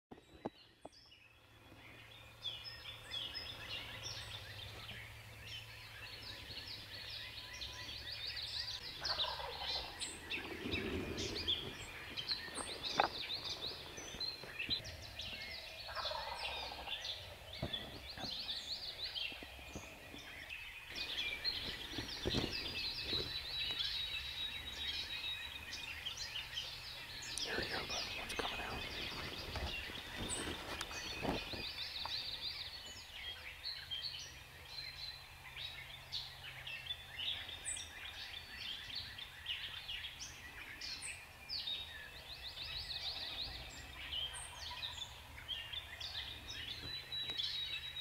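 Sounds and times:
songbirds chirping: 0:00.1 - 0:48.0
turkey gobbling: 0:09.0 - 0:09.9, 0:15.9 - 0:16.9.

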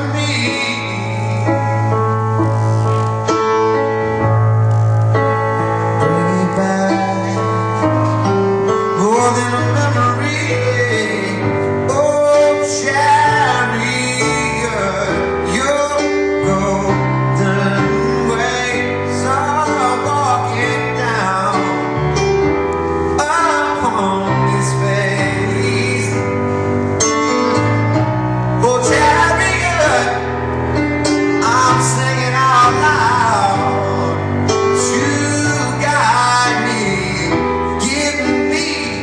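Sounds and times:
instrumental backing: 0:00.0 - 0:39.0
man singing pop-rock song: 0:28.6 - 0:30.4, 0:31.4 - 0:39.0.

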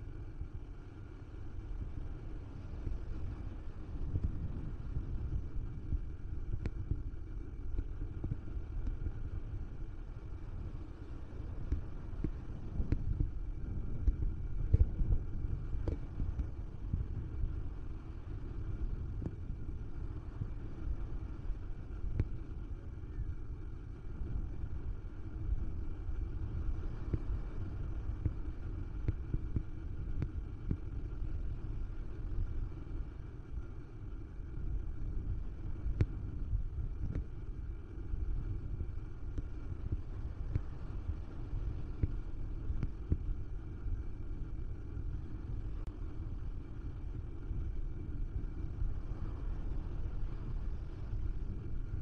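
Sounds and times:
wind buffeting microphone: 0:02.5 - 0:33.6.

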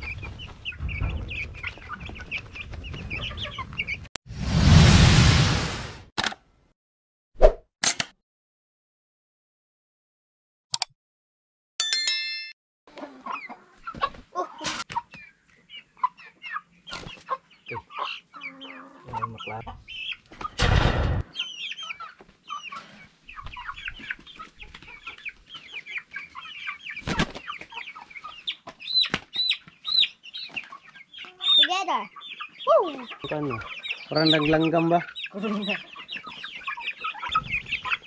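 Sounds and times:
chicks peeping and clucking: 0:00.0 - 0:04.1, 0:12.9 - 0:20.6, 0:21.2 - 0:38.0.

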